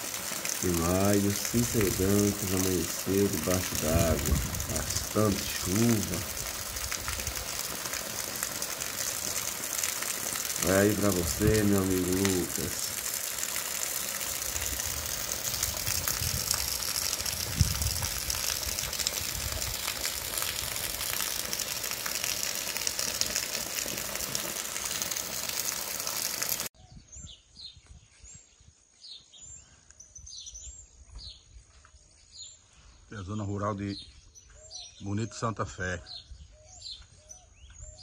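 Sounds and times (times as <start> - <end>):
heavy rain hissing: 0.0 - 26.7
birds chirping: 0.4 - 14.2, 26.8 - 38.0.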